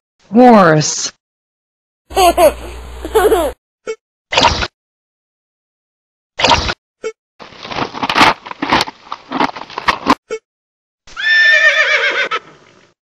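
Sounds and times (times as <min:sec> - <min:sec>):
hooves clopping: 0:07.6 - 0:10.2
horse whinny: 0:11.1 - 0:12.7.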